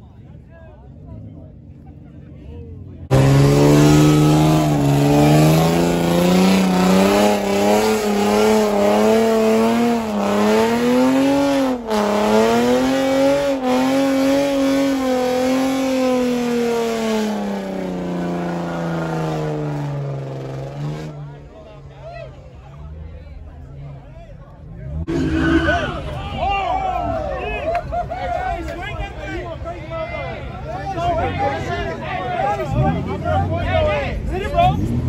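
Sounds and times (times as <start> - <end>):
car engine revving high: 3.1 - 21.2.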